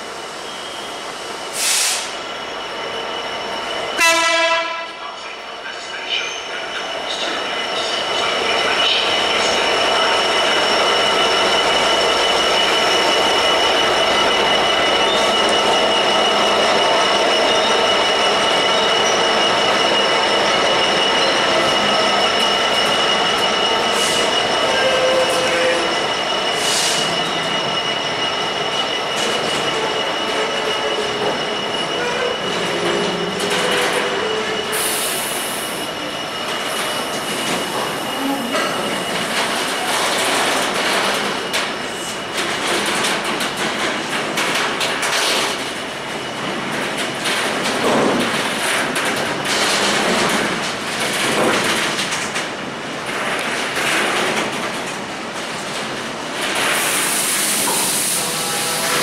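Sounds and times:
train wheels squealing: 0:00.4 - 0:04.0, 0:05.1 - 0:42.4, 0:56.8 - 0:59.0.

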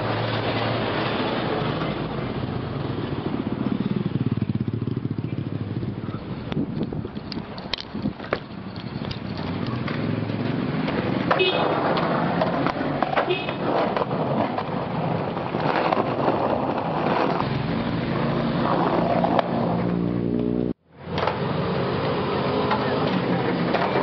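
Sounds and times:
skateboard wheels rolling on concrete: 0:00.0 - 0:24.0
skateboard clacks: 0:06.0 - 0:17.5, 0:21.1 - 0:24.0.

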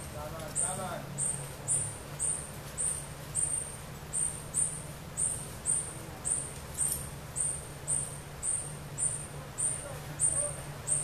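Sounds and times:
low steady hum: 0:00.0 - 0:11.0
animal high-pitched chirp: 0:00.6 - 0:11.0.

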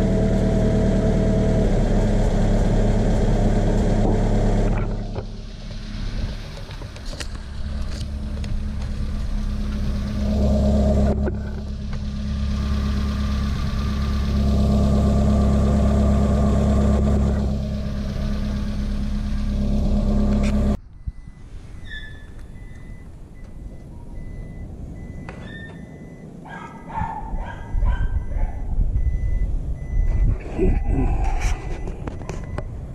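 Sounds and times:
truck engine idling: 0:00.0 - 0:26.4
faint high beeps: 0:20.8 - 0:26.3, 0:28.2 - 0:31.0.

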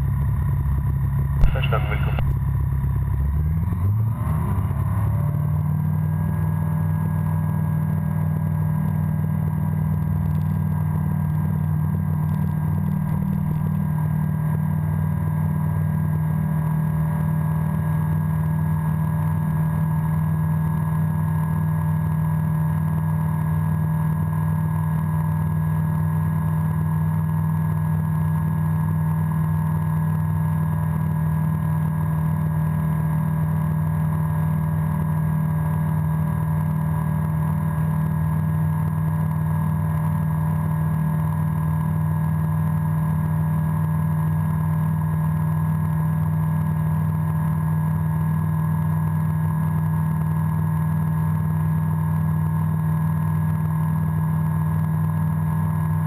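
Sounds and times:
aircraft engine and propeller: 0:00.0 - 0:03.6.

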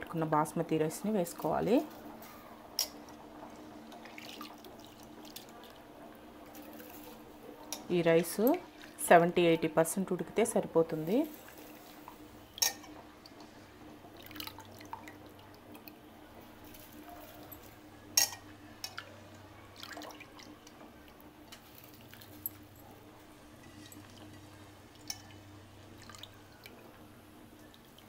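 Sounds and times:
low steady hum: 0:00.0 - 0:28.0
boiling water bubbles plopping: 0:01.2 - 0:07.4, 0:11.3 - 0:16.7, 0:18.2 - 0:28.0.

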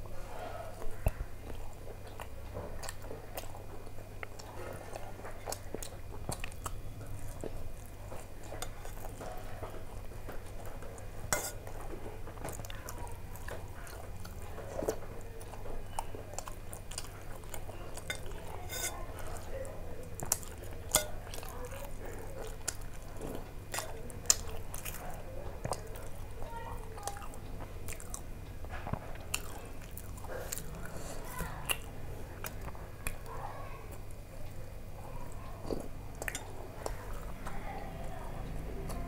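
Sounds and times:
person chewing food: 0:00.1 - 0:39.0
spoon clinking against steel bowl: 0:11.4 - 0:11.6, 0:18.1 - 0:19.0.

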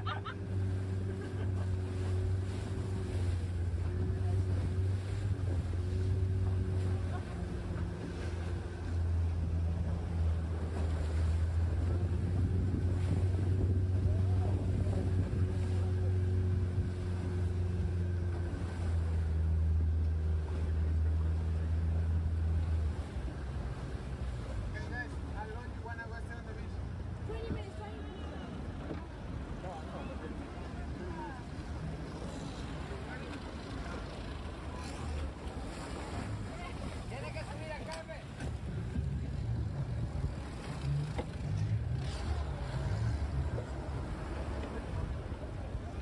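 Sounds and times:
motorboat engine drone: 0:00.0 - 0:46.0
water rushing past hull: 0:00.0 - 0:46.0
wind buffeting microphone: 0:10.2 - 0:17.9.

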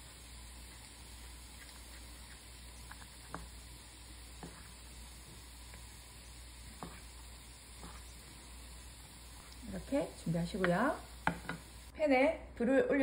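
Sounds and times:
faint steady hiss: 0:00.0 - 0:12.2.

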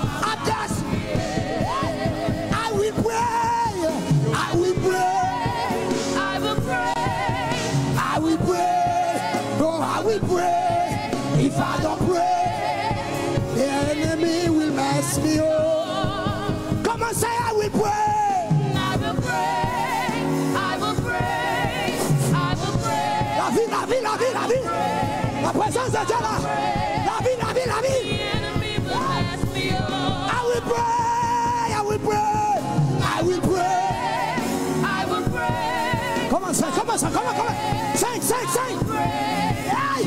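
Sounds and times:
gospel singers with vibrato: 0:00.0 - 0:40.0
instrumental accompaniment with beat: 0:00.0 - 0:40.0.

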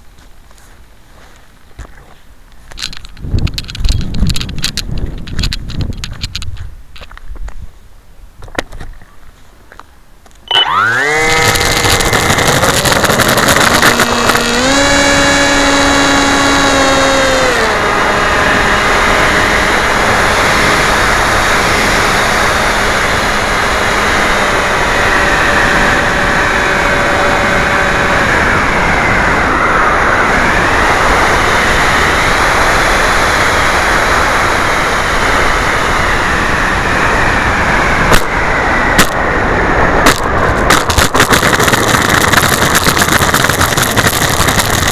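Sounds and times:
wind noise: 0:01.2 - 0:09.8, 0:10.4 - 0:44.9
electric motor propeller whine: 0:10.5 - 0:44.9.

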